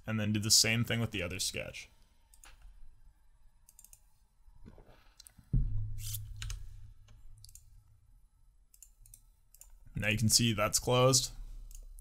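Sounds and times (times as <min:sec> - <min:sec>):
computer mouse clicking: 0:03.6 - 0:04.1, 0:08.7 - 0:09.8, 0:11.7 - 0:12.0
low thump: 0:05.5 - 0:06.9
low hum: 0:05.5 - 0:08.7.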